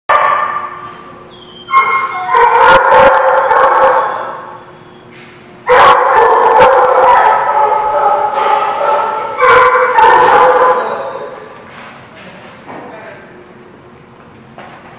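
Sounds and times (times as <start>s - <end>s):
dog barking and howling: 0.1s - 0.8s, 1.5s - 4.8s, 5.7s - 11.5s.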